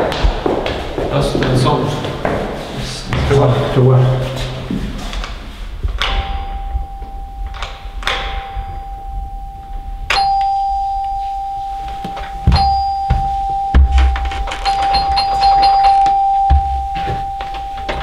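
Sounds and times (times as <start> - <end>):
doorbell ringing: 6.0 - 18.0.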